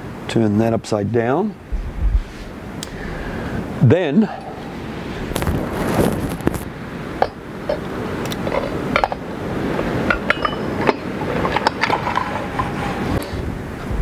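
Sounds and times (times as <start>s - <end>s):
metal parts clinking: 10.0s - 13.0s.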